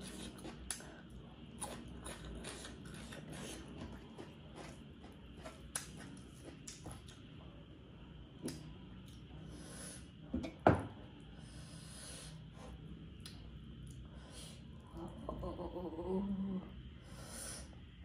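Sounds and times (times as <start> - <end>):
person chewing: 0.0 - 7.3.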